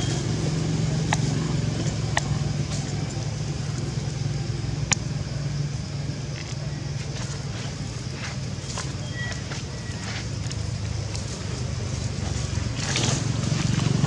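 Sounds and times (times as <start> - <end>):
low motor hum: 0.0 - 14.0.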